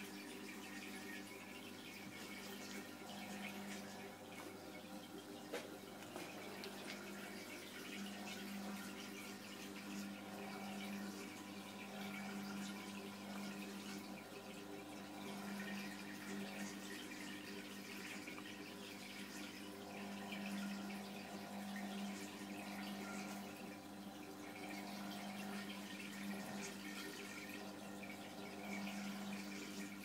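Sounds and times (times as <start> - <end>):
aquarium pump humming: 0.0 - 30.0
water trickling and bubbling: 0.0 - 30.0.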